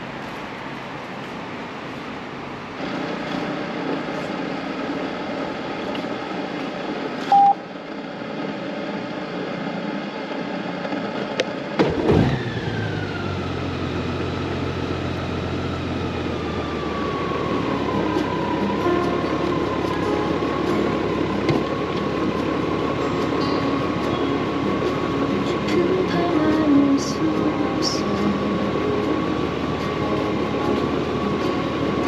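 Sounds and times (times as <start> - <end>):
short beep: 7.3 - 7.6
motorcycle engine starting and idling: 11.7 - 32.0.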